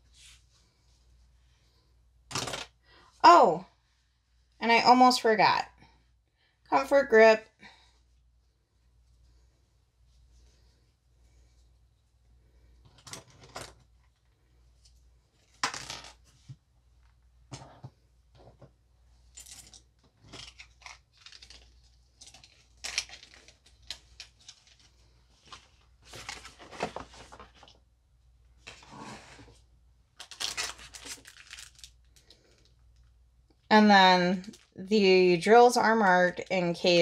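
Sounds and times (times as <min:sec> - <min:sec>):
plastic wrapping crinkling: 0:19.4 - 0:27.8, 0:30.2 - 0:33.1.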